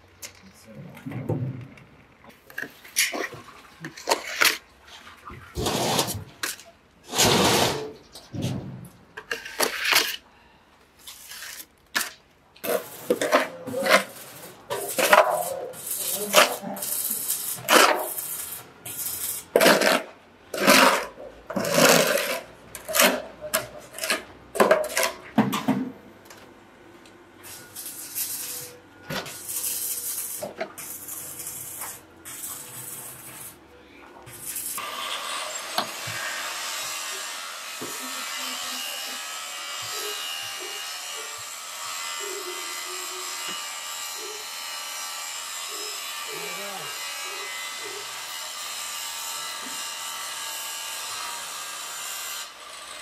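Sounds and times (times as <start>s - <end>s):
shovel scraping concrete floor: 2.5s - 10.3s, 11.0s - 25.9s, 27.4s - 33.6s, 34.3s - 36.5s, 39.8s - 41.4s.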